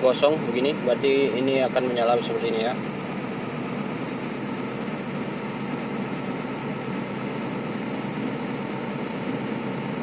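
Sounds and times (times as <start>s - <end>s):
diesel truck engine idling: 0.0s - 10.0s.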